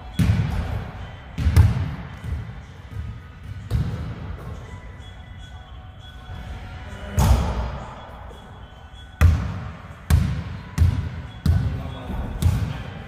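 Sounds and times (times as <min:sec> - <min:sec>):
basketball bouncing on hard court: 0:01.4 - 0:04.5.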